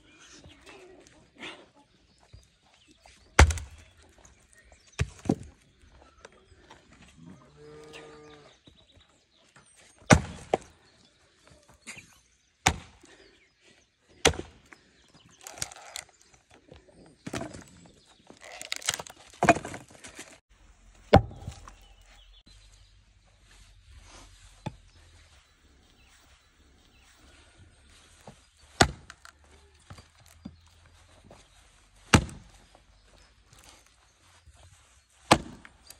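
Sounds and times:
axe chopping logs: 3.3 - 4.2, 4.9 - 5.6, 10.0 - 10.7, 12.6 - 13.1, 14.2 - 14.8, 15.4 - 16.1, 17.2 - 17.8, 18.4 - 20.4, 21.0 - 22.2, 24.6 - 25.0, 28.2 - 31.3, 32.0 - 32.7, 35.2 - 35.9
wood cracking and splintering: 3.4 - 4.2, 15.3 - 20.4, 27.9 - 31.4, 32.0 - 32.7.

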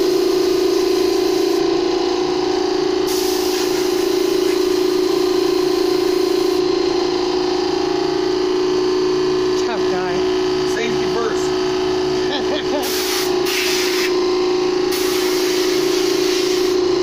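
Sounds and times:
air compressor drone: 0.0 - 17.0
blow gun air hiss: 3.1 - 4.0, 12.8 - 14.2, 14.9 - 16.8.

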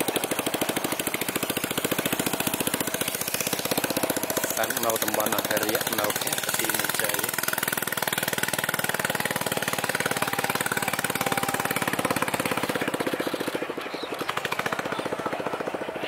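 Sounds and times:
boat engine pulsing: 0.0 - 16.0.

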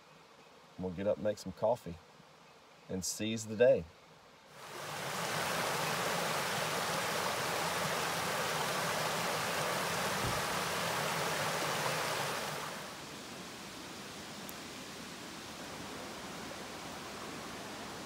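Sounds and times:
brook rushing over rocks: 4.6 - 12.9.

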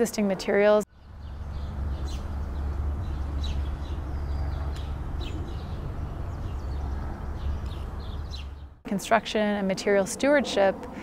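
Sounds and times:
bird chirps: 0.9 - 8.8
low rumble: 0.9 - 8.8.

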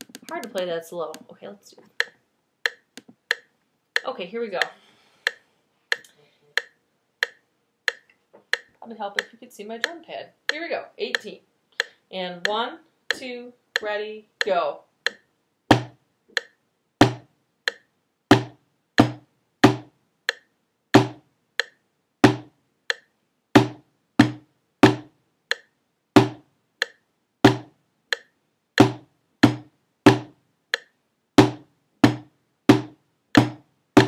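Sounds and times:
drumsticks striking practice pad: 15.1 - 33.6.

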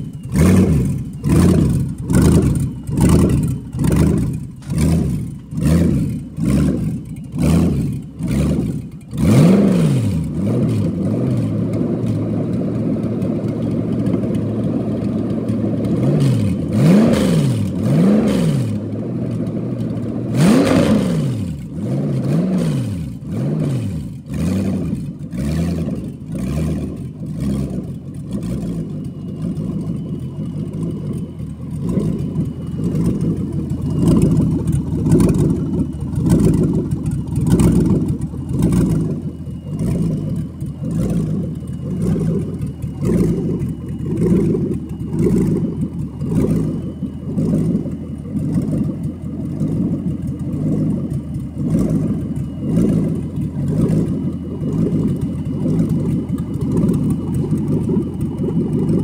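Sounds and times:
faint high whine: 0.0 - 9.2, 24.0 - 59.0
engine idling: 0.0 - 59.0.

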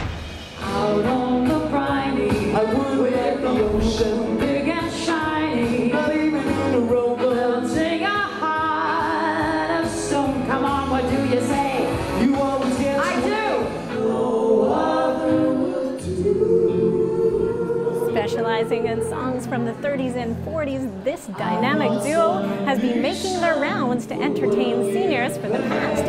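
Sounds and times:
man singing: 0.6 - 8.0, 10.1 - 14.6
woman singing: 0.6 - 13.3, 14.7 - 26.0.

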